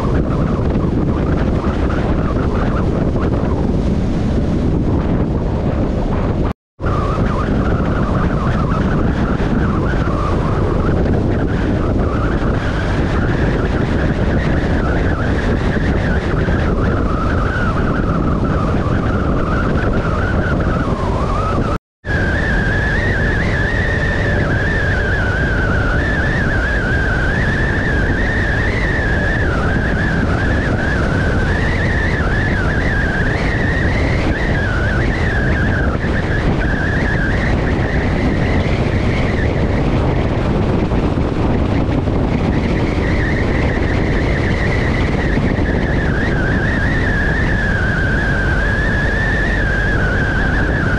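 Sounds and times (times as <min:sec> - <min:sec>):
high wavering whine: 0:00.0 - 0:50.9
wind noise: 0:00.0 - 0:50.9.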